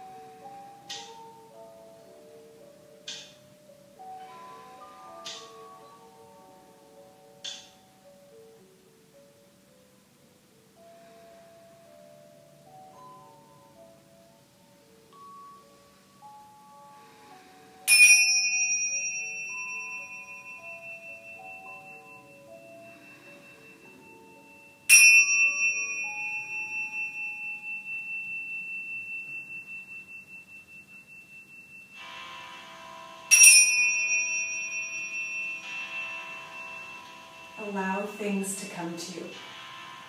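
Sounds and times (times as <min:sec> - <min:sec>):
small cymbals clashing and ringing: 0:17.8 - 0:40.0.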